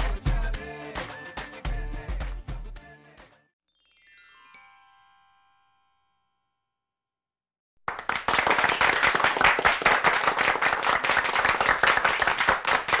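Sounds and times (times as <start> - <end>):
group of people applauding: 7.8 - 13.0.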